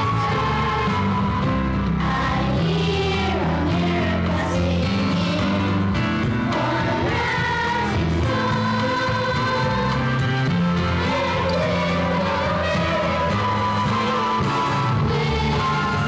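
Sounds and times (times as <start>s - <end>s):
instrumental accompaniment: 0.0s - 16.0s
girls singing together: 2.0s - 5.7s, 6.5s - 10.3s, 11.0s - 16.0s.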